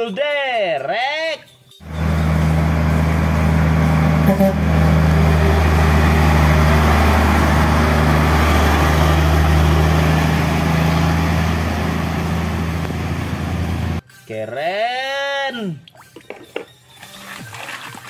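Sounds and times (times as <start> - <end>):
diesel truck engine droning: 1.8 - 14.0.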